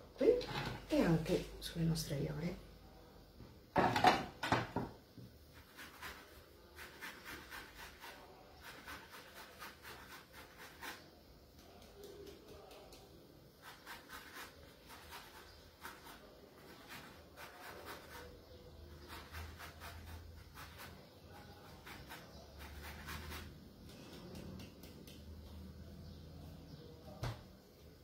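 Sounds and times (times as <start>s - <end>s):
zester scraping lemon: 11.9s - 23.8s.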